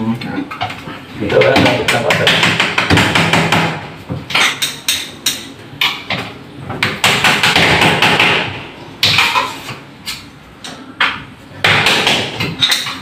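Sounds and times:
sharp knocks and taps: 0.6 - 9.4.

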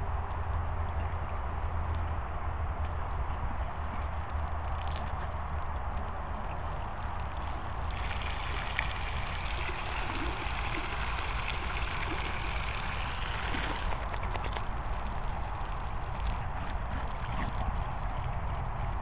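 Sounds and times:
hose water splashing into pool: 4.0 - 19.0
water jet hissing on grass: 4.4 - 19.0.

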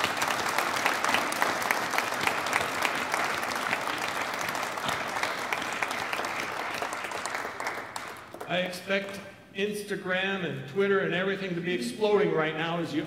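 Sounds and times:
congregation applauding: 0.0 - 8.7.

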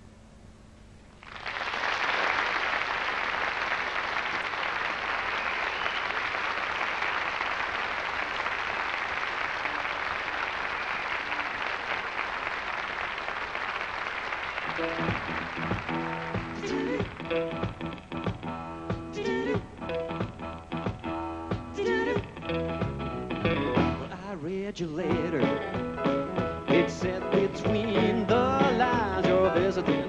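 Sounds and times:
audience applauding: 1.2 - 18.4
band playing: 14.6 - 24.3, 25.0 - 30.0.

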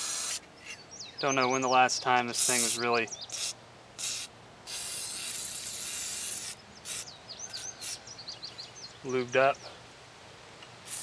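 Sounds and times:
aerosol can spraying: 0.0 - 0.4, 2.4 - 8.0
birds chirping: 0.4 - 3.6, 6.5 - 9.8.

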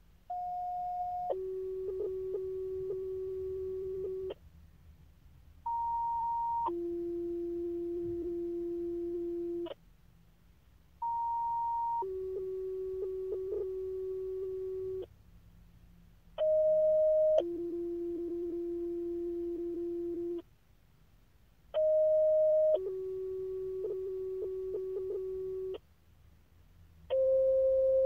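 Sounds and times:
two-tone paging tones: 5.7 - 9.7, 11.0 - 15.0, 16.4 - 20.4, 21.8 - 25.8, 27.1 - 28.0.

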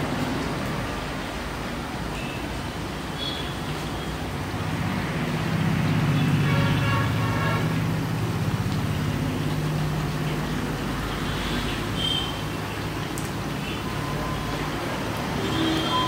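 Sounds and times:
food frying in hot oil: 0.0 - 16.0
vehicle horn: 6.4 - 7.7, 15.4 - 16.0.

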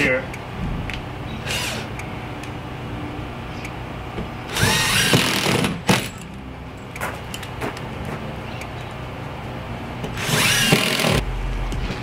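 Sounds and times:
cordless drill whining: 1.4 - 1.9, 4.5 - 5.6, 10.2 - 11.2.

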